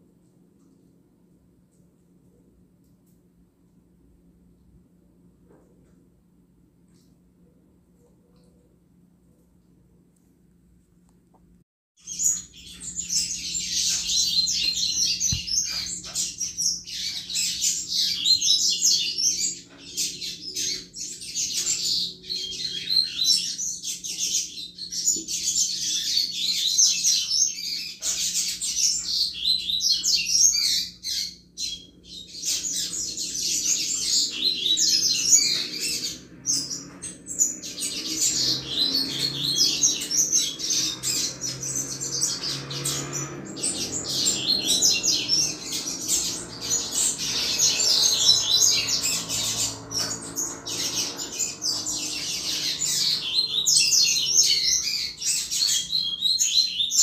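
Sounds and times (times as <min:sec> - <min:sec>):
bird singing high chirps: 0:12.0 - 0:57.0.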